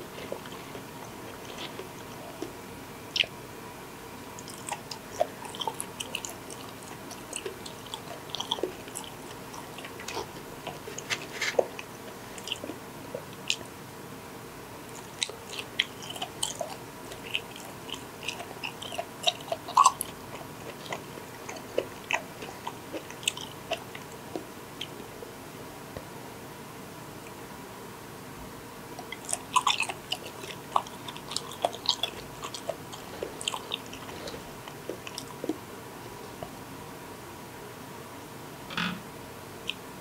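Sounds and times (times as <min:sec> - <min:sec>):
chewing mouth clicks and smacks: 0:00.1 - 0:02.5, 0:03.1 - 0:03.4, 0:04.4 - 0:13.7, 0:14.9 - 0:25.1, 0:29.0 - 0:35.6.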